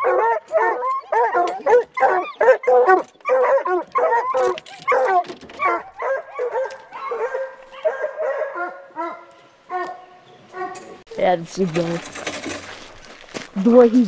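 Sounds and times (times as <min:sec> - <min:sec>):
hounds barking and bawling: 0:00.0 - 0:11.1.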